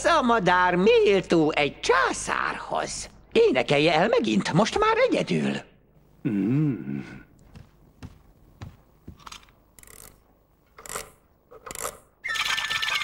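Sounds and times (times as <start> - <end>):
toy bird trilling tune: 12.2 - 13.0.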